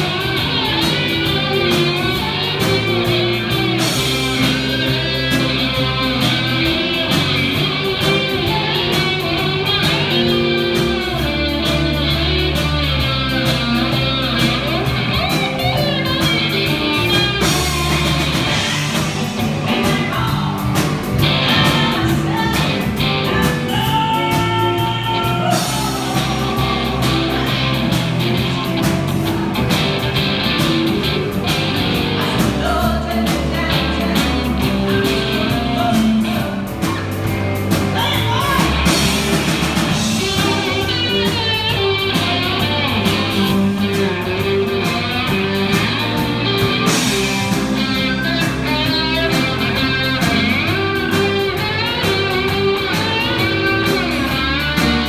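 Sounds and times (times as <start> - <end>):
bass guitar: 0.0 - 55.0
drums: 0.0 - 55.0
electric guitars: 0.0 - 55.0
person singing: 19.5 - 37.1, 37.9 - 55.0.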